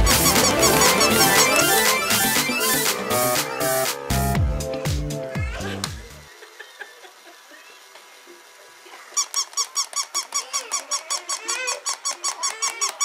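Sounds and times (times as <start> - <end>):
toy dog squeaking: 0.0 - 2.2, 9.1 - 13.0.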